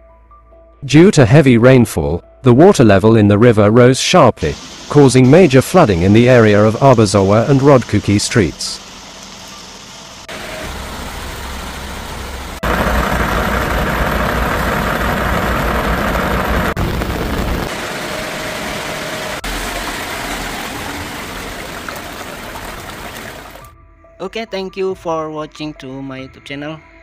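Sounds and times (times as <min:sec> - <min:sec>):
rain and floodwater: 0:04.4 - 0:23.7
vehicle engine running: 0:08.8 - 0:23.6.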